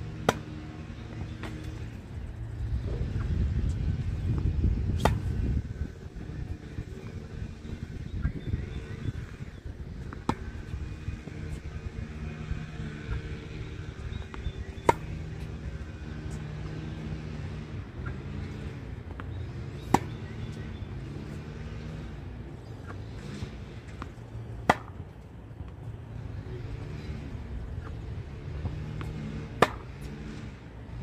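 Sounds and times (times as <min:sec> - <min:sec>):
steady low hum: 0:00.0 - 0:31.0
racket hitting tennis ball: 0:00.1 - 0:01.8, 0:04.4 - 0:05.6, 0:10.0 - 0:13.6, 0:14.3 - 0:16.4, 0:17.0 - 0:20.6, 0:22.8 - 0:25.2, 0:28.6 - 0:30.4
tennis ball bouncing: 0:00.1 - 0:02.1, 0:04.0 - 0:22.0, 0:22.7 - 0:25.9, 0:27.8 - 0:30.4.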